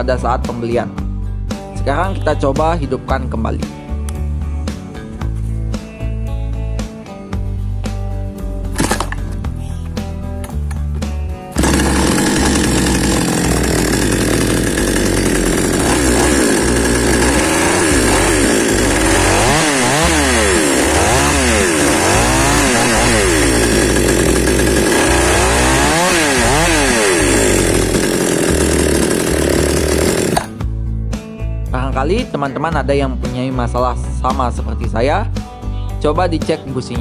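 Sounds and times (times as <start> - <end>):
chainsaw engine revving and idling: 11.6 - 30.6.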